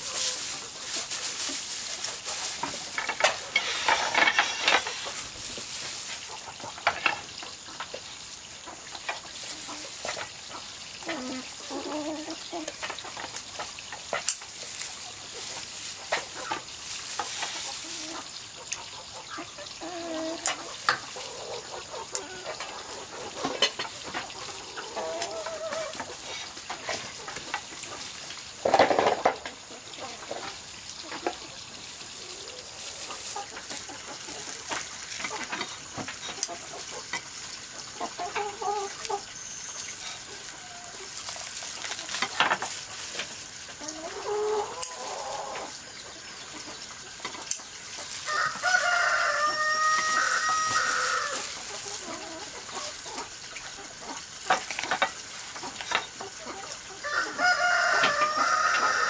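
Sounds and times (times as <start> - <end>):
chicken calls: 0.0 - 59.0
rooster crowing: 48.2 - 51.5, 57.0 - 59.0.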